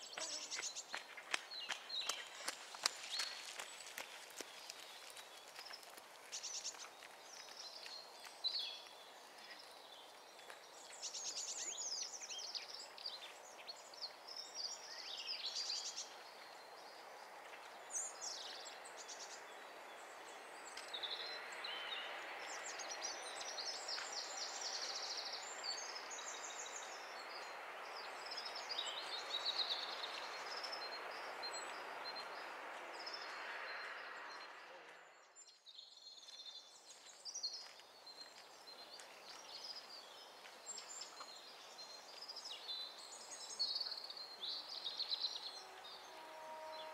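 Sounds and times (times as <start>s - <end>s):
songbirds singing and chirping: 0.0s - 46.9s.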